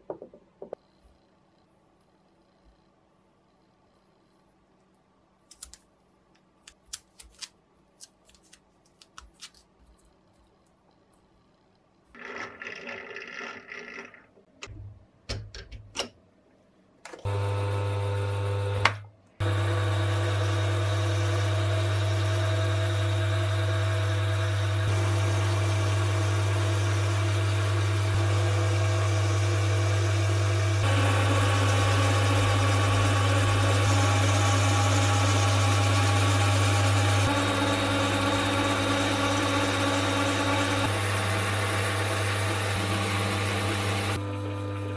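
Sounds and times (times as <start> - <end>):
clicks and knocks: 14.4 - 16.2
metal lathe humming: 17.3 - 44.9.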